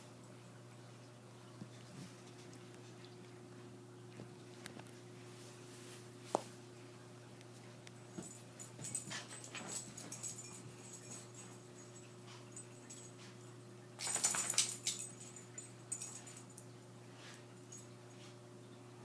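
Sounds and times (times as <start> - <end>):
steady low hum: 0.0 - 19.0
dogs play-fighting: 8.2 - 16.4.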